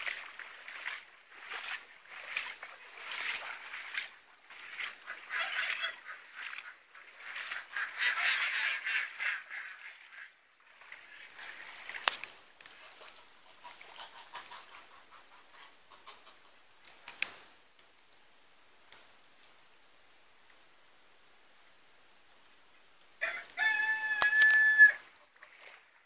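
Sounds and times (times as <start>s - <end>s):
geese honking: 5.0s - 10.4s, 23.2s - 25.0s.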